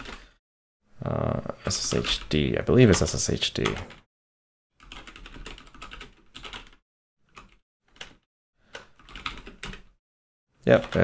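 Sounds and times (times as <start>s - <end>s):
typing on computer keyboard: 4.8s - 9.9s.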